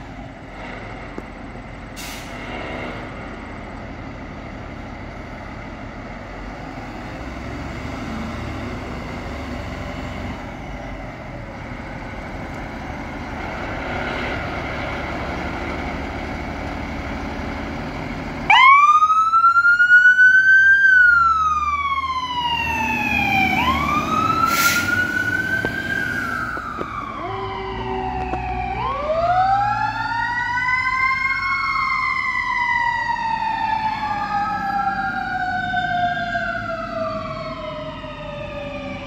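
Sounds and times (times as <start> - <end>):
short hiss: 2.0 - 2.5, 24.5 - 25.0
fire engine siren wailing: 3.0 - 39.0.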